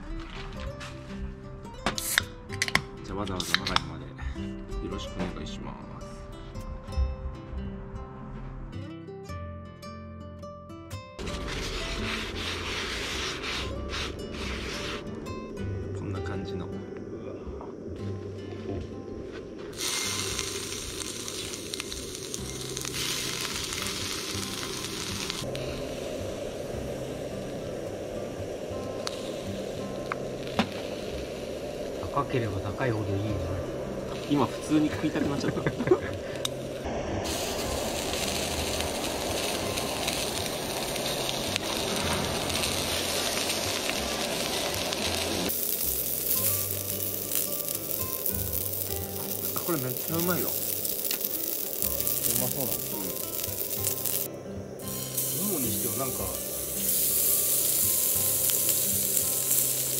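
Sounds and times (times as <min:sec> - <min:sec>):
meat sizzling on hot plate: 0:19.7 - 0:59.9.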